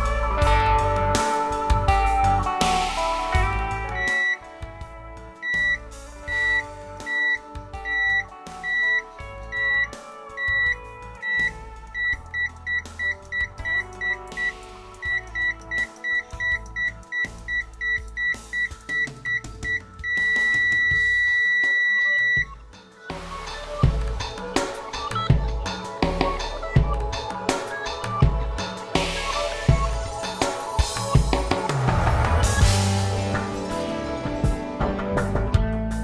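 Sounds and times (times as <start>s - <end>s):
background music with drums: 0.0s - 36.0s
multimeter continuity beeps: 4.0s - 4.4s, 5.4s - 22.6s.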